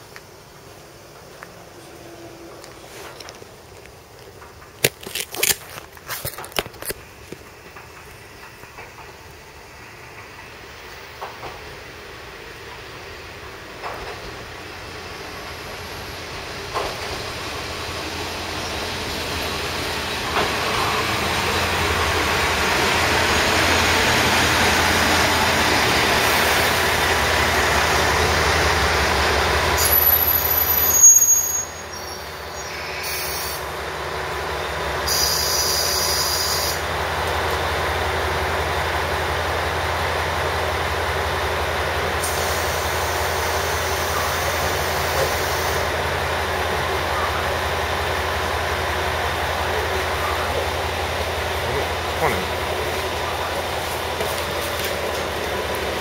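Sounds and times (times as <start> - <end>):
train low hum: 0.0 - 56.0
electric train running: 6.8 - 31.2
train brakes and wheels squealing: 29.7 - 33.7, 34.6 - 36.9, 42.2 - 47.8.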